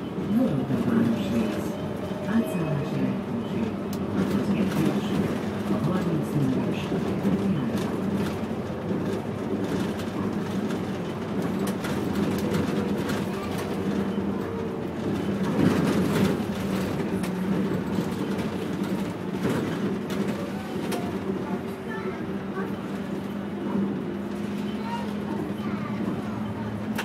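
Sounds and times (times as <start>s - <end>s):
bus body rattling: 0.0s - 27.0s
bus engine drone: 0.0s - 27.0s.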